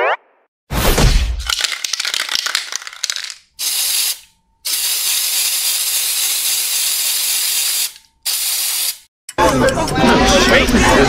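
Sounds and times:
aerosol spray can hissing: 3.6s - 9.1s.

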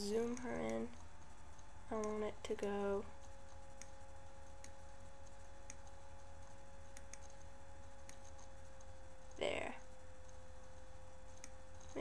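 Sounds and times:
faint steady tone: 0.0s - 12.0s
low electrical hum: 0.0s - 12.0s
computer mouse clicks: 3.5s - 9.3s, 11.3s - 12.0s.

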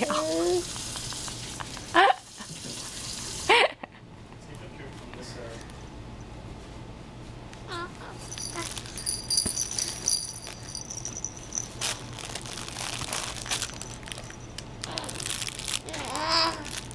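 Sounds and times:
bells jingling inside blocks: 8.2s - 12.4s, 13.5s - 14.6s
crinkling and rattling blocks: 8.3s - 16.9s
baby babbling: 15.8s - 16.7s
baby cooing: 15.8s - 16.8s.

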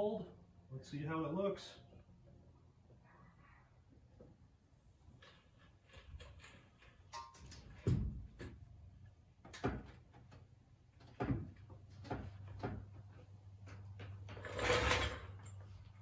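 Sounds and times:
metal knocks and clunks: 7.2s - 8.7s.

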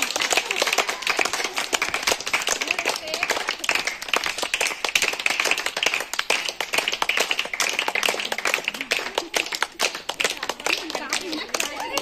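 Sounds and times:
women clapping: 0.0s - 12.0s
women chattering: 8.7s - 12.0s.

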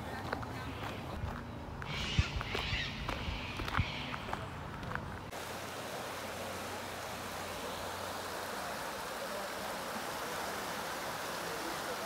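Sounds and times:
creek rushing over rocks: 4.8s - 12.0s.

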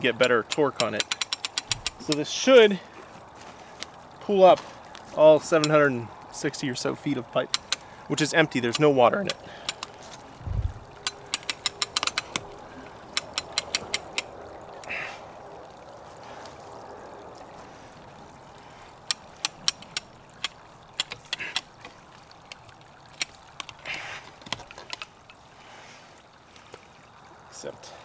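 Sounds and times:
winch ratchet clicking: 0.2s - 2.3s, 7.4s - 7.9s, 8.5s - 10.0s, 10.9s - 14.9s, 19.0s - 25.4s.

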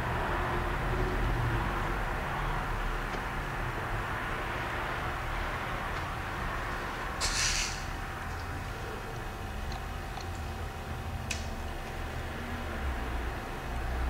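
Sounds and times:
short hiss: 7.2s - 7.9s.

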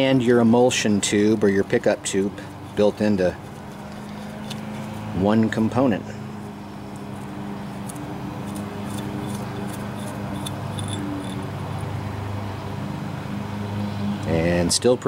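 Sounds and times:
light clicks of metal parts: 2.1s - 5.1s, 6.4s - 11.9s.

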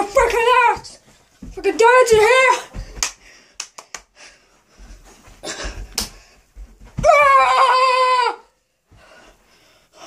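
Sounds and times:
feet tapping and thudding on floor: 0.0s - 3.4s, 4.7s - 7.7s
loud high-pitched yell: 7.0s - 8.5s.

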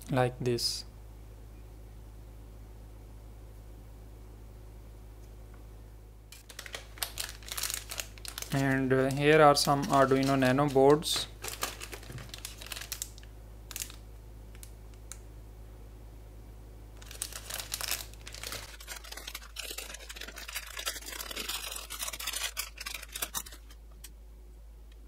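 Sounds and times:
plastic bags crinkling: 6.4s - 14.0s, 17.0s - 24.1s.

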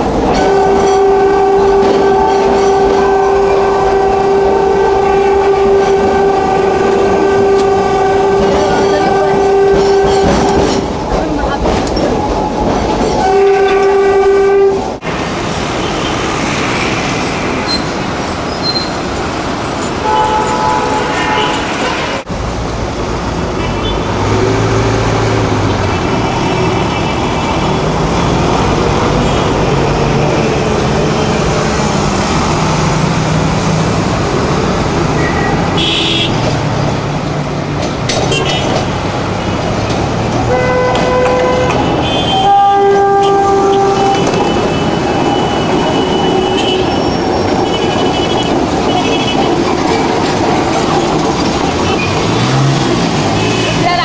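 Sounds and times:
city traffic noise: 0.0s - 54.0s
tram running on street track: 0.0s - 54.0s
horn toots: 0.4s - 10.7s, 13.2s - 14.9s, 20.0s - 22.2s, 35.2s - 36.5s, 40.5s - 49.5s.

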